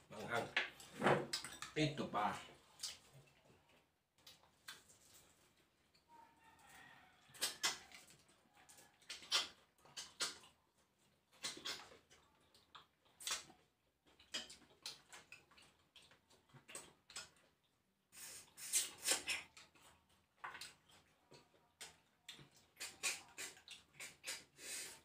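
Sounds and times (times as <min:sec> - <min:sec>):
wet smacking and sucking: 0:07.2 - 0:08.2, 0:09.0 - 0:10.6, 0:11.3 - 0:12.1, 0:13.1 - 0:13.6, 0:18.1 - 0:20.9, 0:21.8 - 0:25.0.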